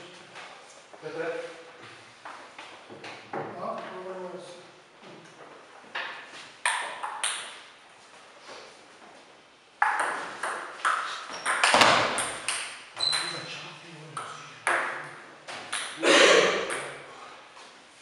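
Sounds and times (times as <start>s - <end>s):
table tennis ball hitting table and bats: 5.9s - 7.7s, 9.8s - 13.4s, 14.2s - 17.1s.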